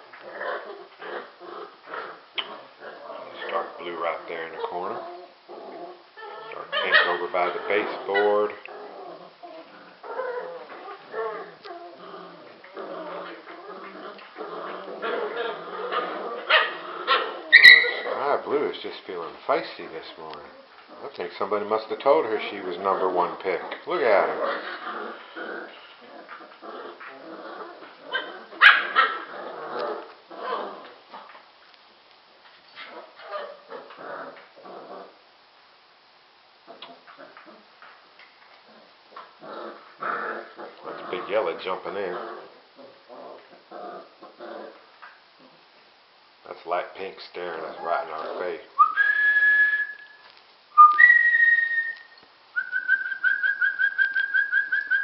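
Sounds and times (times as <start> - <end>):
puppies barking and growling: 0.0 - 31.5, 32.6 - 35.2, 36.6 - 45.6, 47.4 - 52.0, 52.6 - 55.0
person whistling: 48.8 - 50.2.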